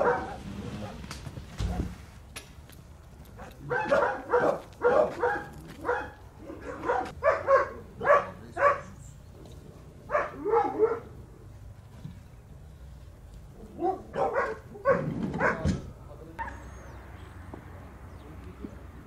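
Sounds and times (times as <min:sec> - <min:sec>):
dog barking: 0:00.0 - 0:01.0, 0:03.4 - 0:09.0, 0:10.1 - 0:11.2, 0:13.6 - 0:15.8, 0:16.4 - 0:16.7.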